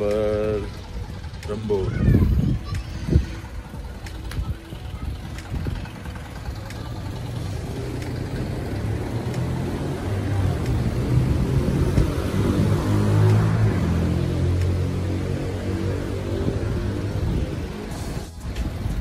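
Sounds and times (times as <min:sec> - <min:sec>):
truck engine idling: 0:00.0 - 0:11.8.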